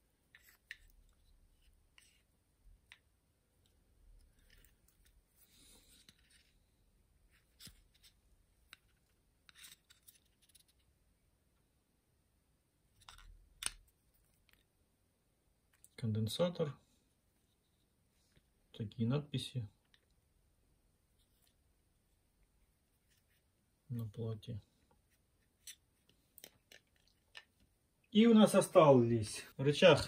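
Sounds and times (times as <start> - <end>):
soft rustles: 21.1 - 23.6.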